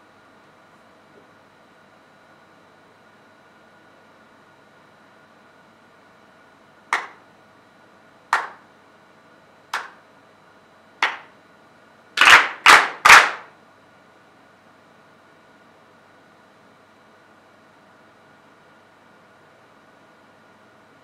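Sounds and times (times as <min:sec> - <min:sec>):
group clapping in unison: 0:06.9 - 0:07.2, 0:08.3 - 0:08.7, 0:09.7 - 0:10.0, 0:11.0 - 0:11.3, 0:12.2 - 0:13.5.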